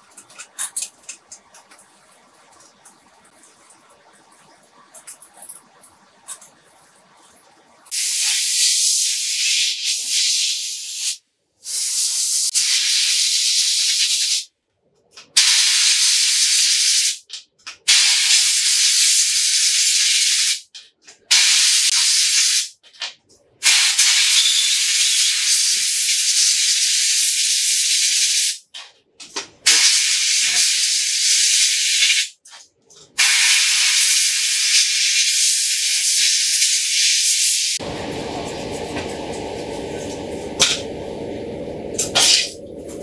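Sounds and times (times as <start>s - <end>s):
compressed air hissing: 7.9s - 14.4s, 33.2s - 43.0s
low background hum: 37.8s - 43.0s.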